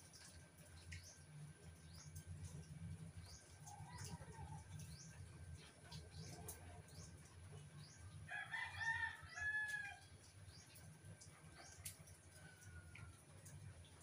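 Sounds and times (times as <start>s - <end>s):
rooster crowing: 8.3s - 10.0s.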